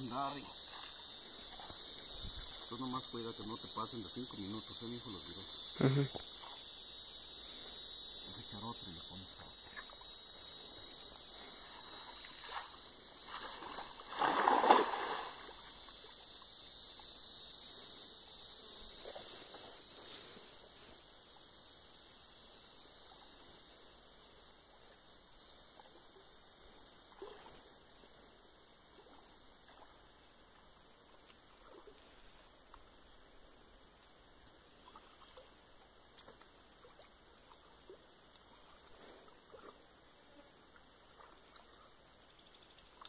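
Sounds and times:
high insect buzz: 0.0 - 43.0
water sloshing and splashes: 11.6 - 15.9.

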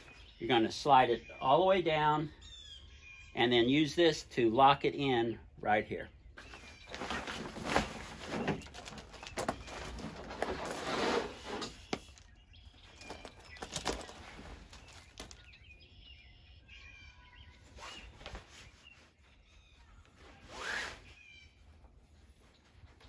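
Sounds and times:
fabric rustling and flapping: 6.5 - 10.9.

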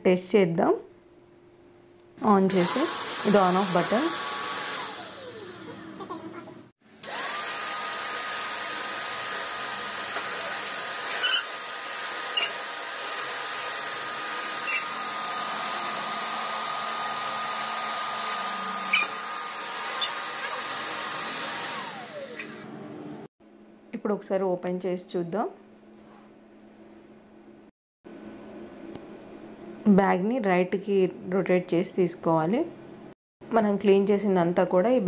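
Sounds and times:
vacuum cleaner motor whining: 2.5 - 23.1.

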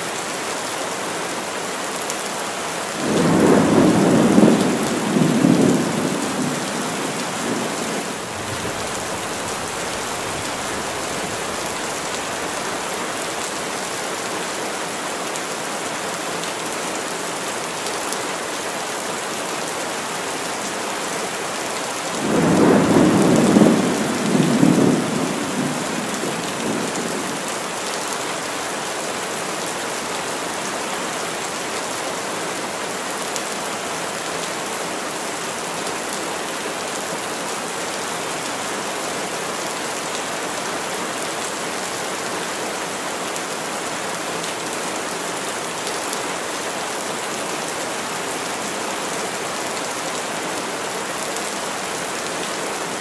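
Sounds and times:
heavy rain through trees: 0.0 - 53.0
thunder rumbling: 22.2 - 27.4.

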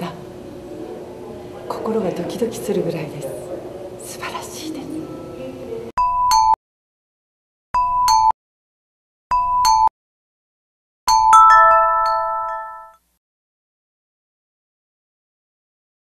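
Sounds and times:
ringing chime chord: 11.1 - 13.0
two-note chime jingle: 11.1 - 13.0.

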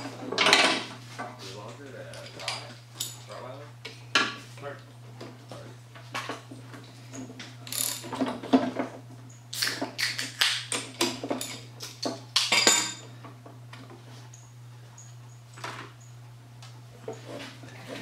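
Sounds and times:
steady low hum: 0.0 - 18.0
metal parts clinking: 7.7 - 8.2.

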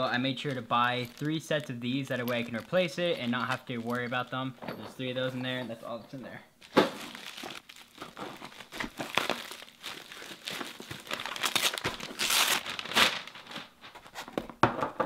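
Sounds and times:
envelope crinkling and rustling: 0.5 - 4.1, 6.6 - 14.3.

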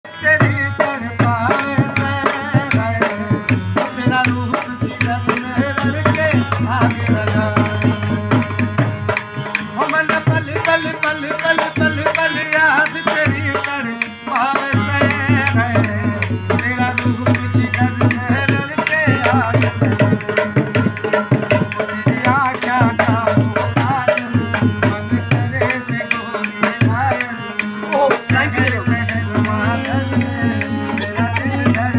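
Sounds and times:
sustained harmonium: 0.0 - 31.9
barrel drum rhythm: 0.1 - 31.9
person singing: 9.7 - 31.9.

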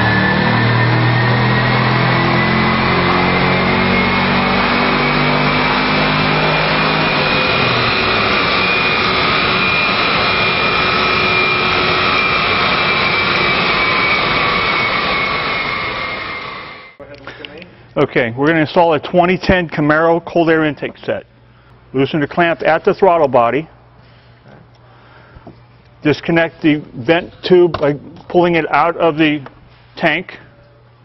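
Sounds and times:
car engine revving hard: 0.0 - 16.8
whine of spinning tyres and rollers: 0.0 - 17.0.

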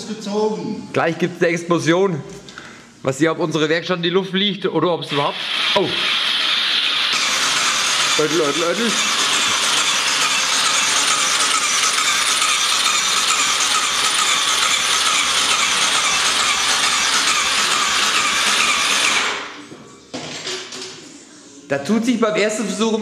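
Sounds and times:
electric starter cranking engine: 5.1 - 19.5.

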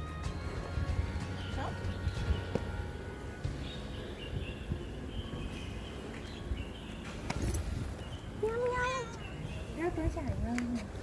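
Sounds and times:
street background noise: 0.0 - 11.0
footstep thumps: 2.3 - 2.9.

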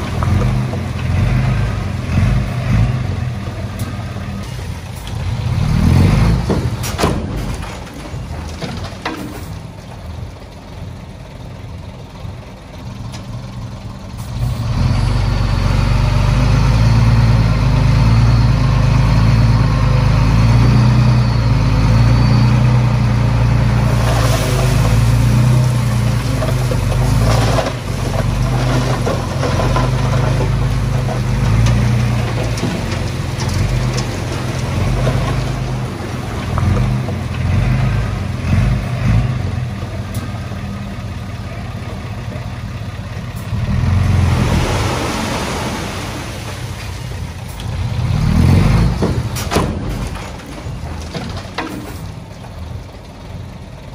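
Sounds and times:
heavy diesel machinery running: 0.0 - 53.9
scraping and clattering: 23.9 - 37.4, 48.9 - 52.4.

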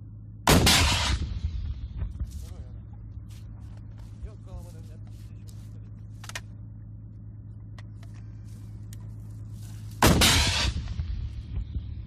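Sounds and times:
engine running with low hum: 0.0 - 12.0
sudden loud burst of noise: 10.0 - 12.0.

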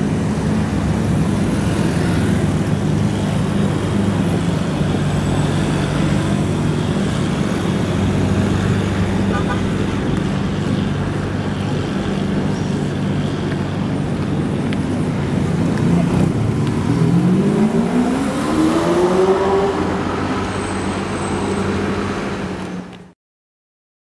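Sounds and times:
car engine revving: 15.4 - 21.2.

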